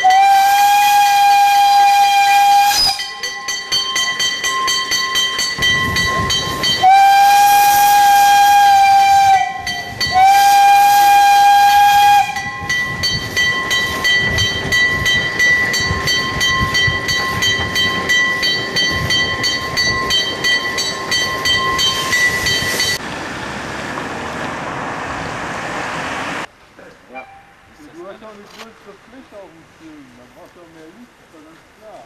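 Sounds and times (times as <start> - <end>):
steam locomotive whistle: 0.0 - 3.4, 5.8 - 12.7
level crossing warning bell: 2.9 - 7.2, 12.3 - 23.0.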